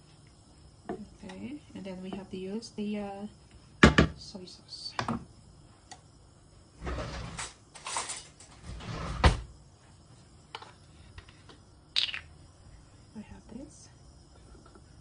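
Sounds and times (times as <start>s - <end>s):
things scraping and rustling in cupboard: 6.8s - 9.5s.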